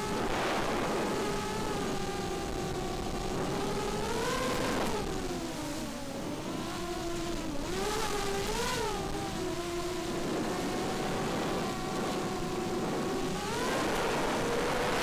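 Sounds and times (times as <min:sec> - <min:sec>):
rush of air: 0:00.0 - 0:01.8
drone motors whining: 0:00.0 - 0:15.0.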